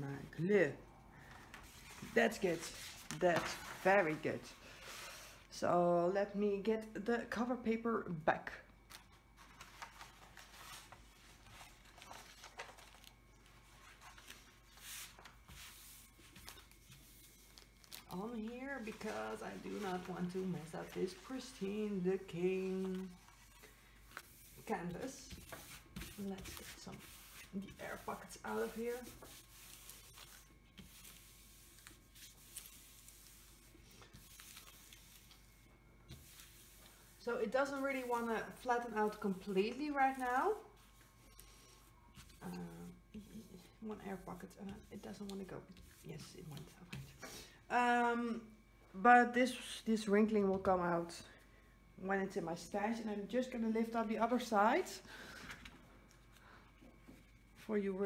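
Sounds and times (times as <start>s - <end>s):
plastic sheet rustling and crinkling: 1.4s - 5.2s, 8.9s - 47.1s.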